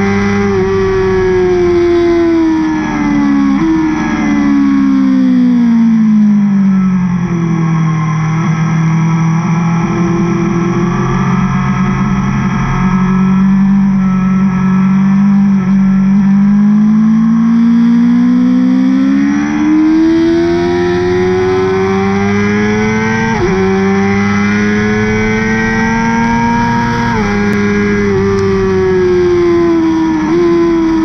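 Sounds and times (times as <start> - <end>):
motorcycle engine accelerating: 0.0 - 31.0.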